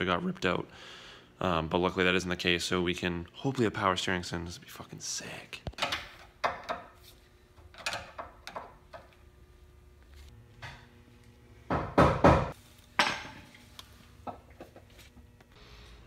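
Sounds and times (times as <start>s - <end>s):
knocks and clunks of hand work: 5.8s - 7.0s, 11.7s - 13.4s.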